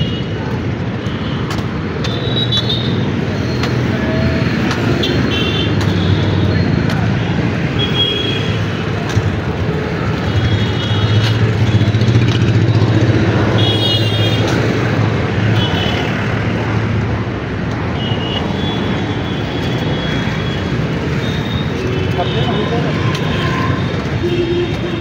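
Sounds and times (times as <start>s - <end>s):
motorcycle and car engines: 0.0s - 7.8s, 8.5s - 25.0s.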